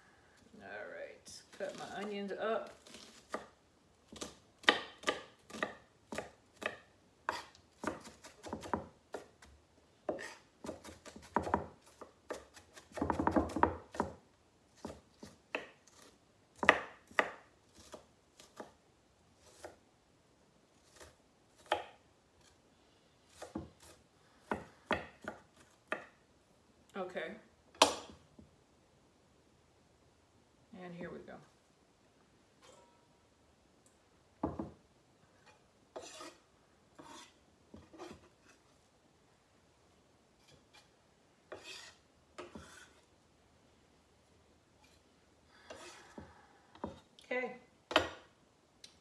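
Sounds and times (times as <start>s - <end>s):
knife chopping on wooden board: 4.1s - 9.4s, 10.1s - 14.2s, 14.8s - 18.8s, 21.0s - 22.0s.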